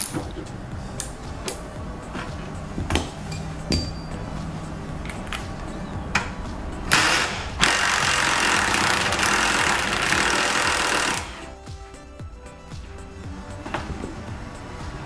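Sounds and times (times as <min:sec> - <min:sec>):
impact wrench running: 0:06.8 - 0:11.5.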